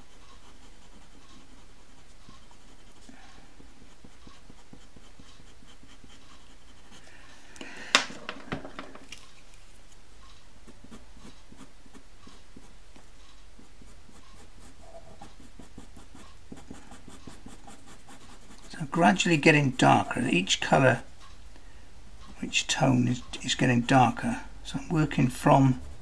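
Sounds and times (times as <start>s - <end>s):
pencil scratching on paper: 0.0s - 7.1s, 10.6s - 21.1s, 22.2s - 26.0s
pencil knocking when put down: 7.9s - 9.1s.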